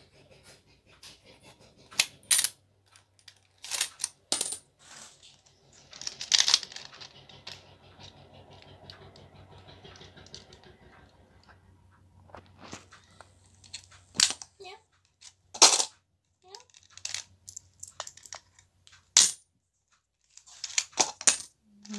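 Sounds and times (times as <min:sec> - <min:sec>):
coins rattling in a metal tin: 0:02.2 - 0:02.5, 0:03.2 - 0:07.6, 0:16.5 - 0:18.5, 0:19.2 - 0:19.4, 0:20.3 - 0:21.9.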